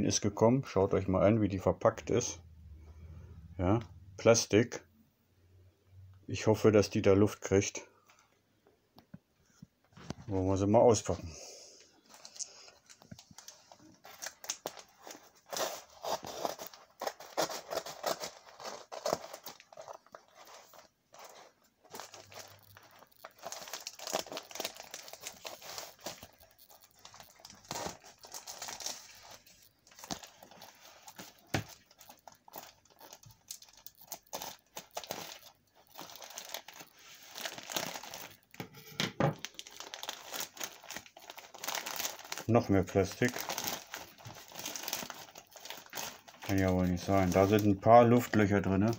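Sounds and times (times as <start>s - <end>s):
plastic crinkling: 11.9s - 38.6s, 39.3s - 48.9s.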